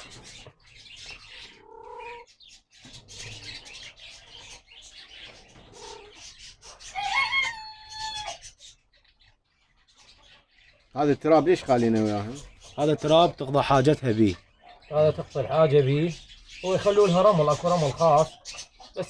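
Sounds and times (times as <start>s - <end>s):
small bird calls: 0.0s - 19.0s
rooster crowing: 6.9s - 8.4s.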